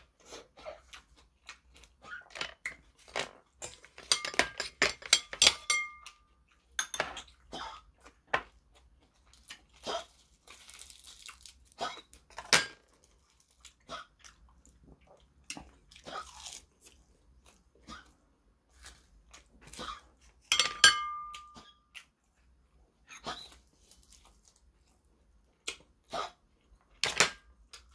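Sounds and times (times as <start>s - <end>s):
person chewing and crunching: 0.0s - 4.1s, 6.0s - 20.5s, 21.2s - 27.0s
utensils clattering: 3.1s - 6.0s, 20.5s - 21.7s.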